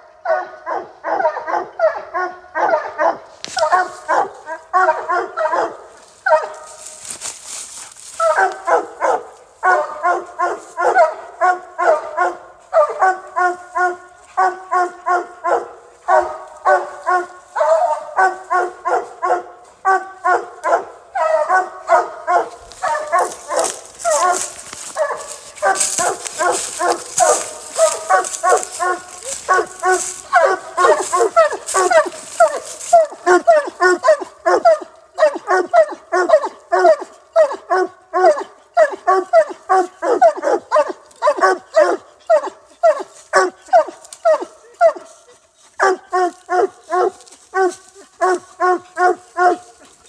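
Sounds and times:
dog barking rapidly: 0:00.3 - 0:06.8, 0:08.2 - 0:45.1, 0:45.8 - 0:49.8
rustling: 0:06.0 - 0:08.7, 0:22.4 - 0:33.2.

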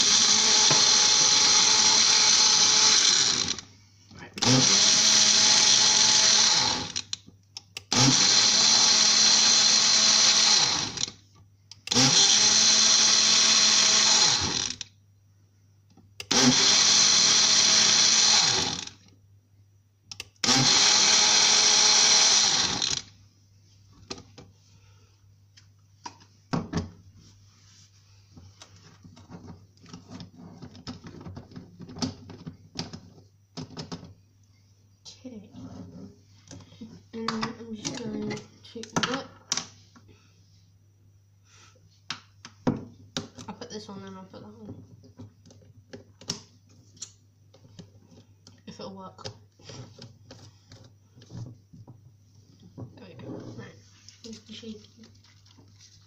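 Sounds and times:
personal blender running: 0:00.0 - 0:03.6, 0:04.4 - 0:07.1, 0:07.9 - 0:11.1, 0:11.9 - 0:14.8, 0:16.3 - 0:19.0, 0:20.4 - 0:23.1.

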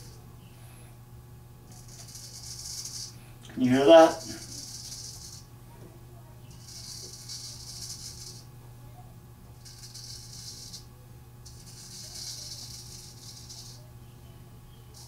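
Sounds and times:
razor scraping stubble: 0:01.7 - 0:05.5, 0:06.5 - 0:08.5, 0:09.6 - 0:13.9.

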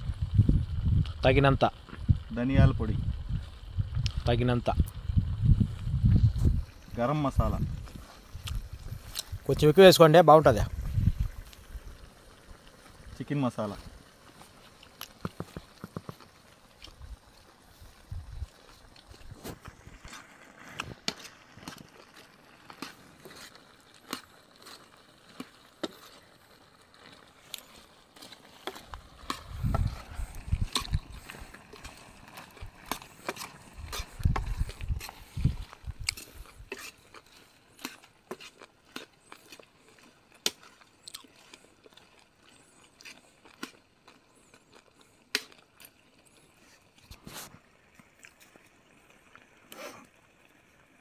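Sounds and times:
fire crackling: 0:00.0 - 0:51.0
dull low thumps: 0:04.9 - 0:06.7
ladle stirring in pan: 0:10.5 - 0:43.8.

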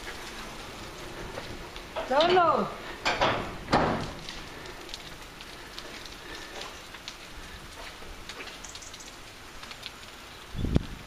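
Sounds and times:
light rain pattering: 0:00.0 - 0:11.0
drops ticking: 0:04.2 - 0:10.3.

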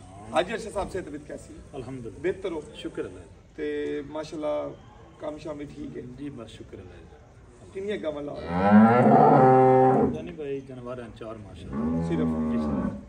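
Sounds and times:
cow mooing: 0:08.4 - 0:10.3, 0:11.7 - 0:13.0.

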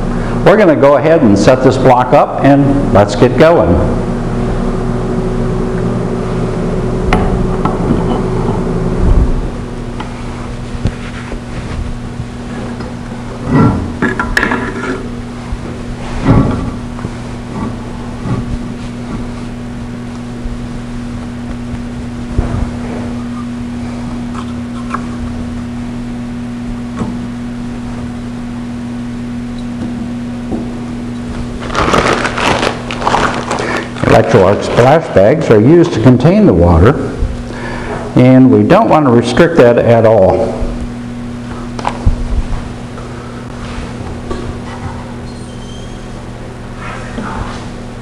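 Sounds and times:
machine hum: 0:00.0 - 0:48.0
steady electrical buzz: 0:00.0 - 0:48.0
electrode sparking crackles: 0:31.6 - 0:34.2.

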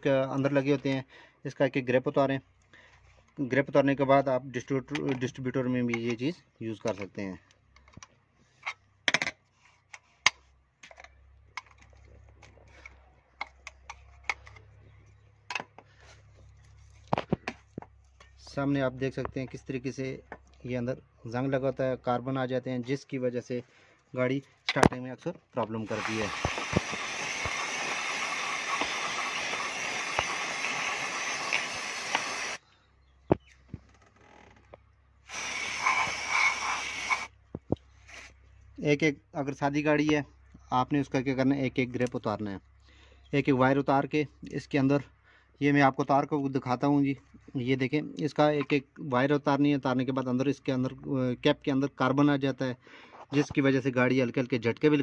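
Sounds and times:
aerosol spray hissing: 0:25.9 - 0:32.6, 0:35.3 - 0:37.3.

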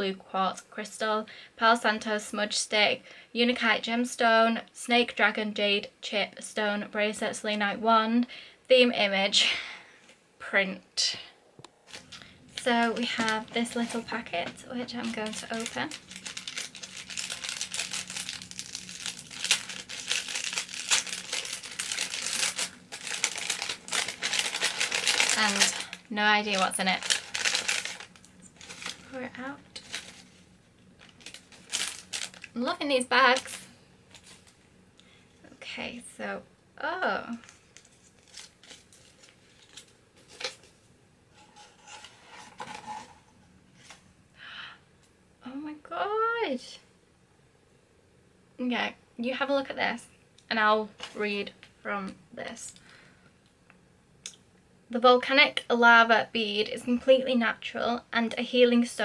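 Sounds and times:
packet wrapping crinkling: 0:11.8 - 0:34.6, 0:37.3 - 0:40.8
hands rustling a small bag: 0:15.0 - 0:32.6, 0:37.4 - 0:44.0.

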